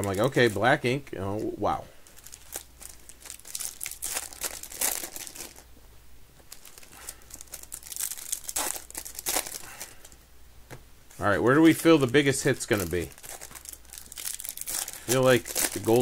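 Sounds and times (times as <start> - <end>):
foil wrappers crinkling and tearing: 0.0 - 0.7, 1.4 - 5.7, 6.5 - 10.2, 11.6 - 16.0.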